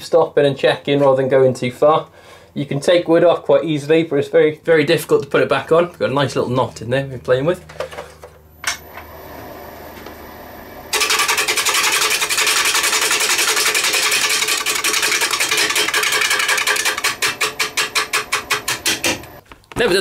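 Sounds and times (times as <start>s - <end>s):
gouge scraping spinning wood: 10.9s - 19.4s
wood lathe running: 10.9s - 19.4s.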